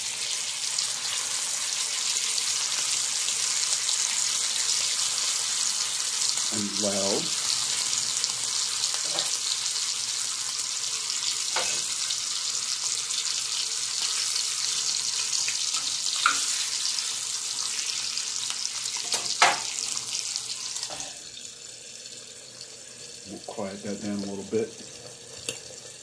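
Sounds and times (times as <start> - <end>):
bacon sizzling in a skillet: 0.0 - 26.0
lid going on pan: 9.0 - 9.4, 11.6 - 11.9, 20.8 - 21.2.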